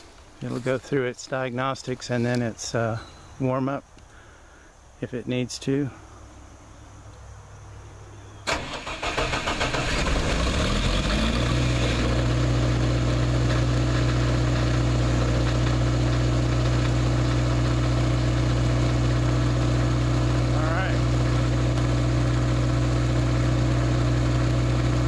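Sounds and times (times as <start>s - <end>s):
diesel generator starting and running: 8.2s - 25.0s.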